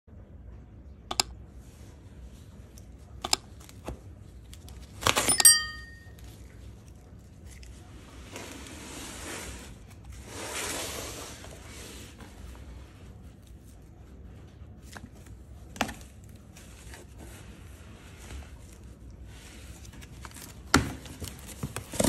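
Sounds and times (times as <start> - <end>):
brief metallic ring: 5.2 - 6.1
tape and cardboard tearing: 20.3 - 22.0.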